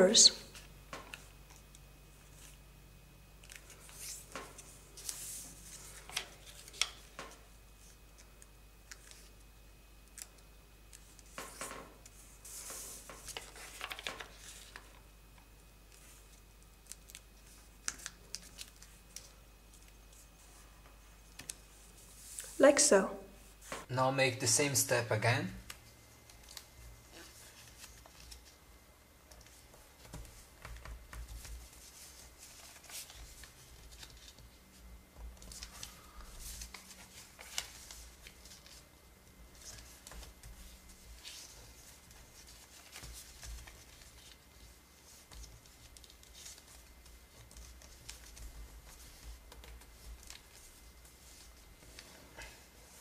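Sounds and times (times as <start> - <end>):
paper rustling and scraping: 3.4 - 8.0, 11.0 - 15.0, 31.2 - 34.6, 35.4 - 38.9.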